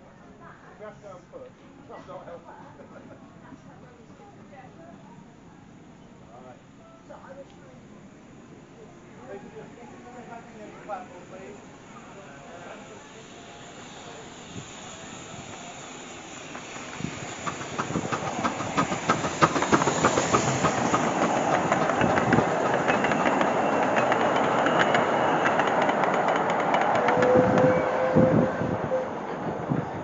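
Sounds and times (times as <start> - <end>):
train rumble: 8.1 - 30.0
train wheels clicking over rail joints: 13.9 - 27.8.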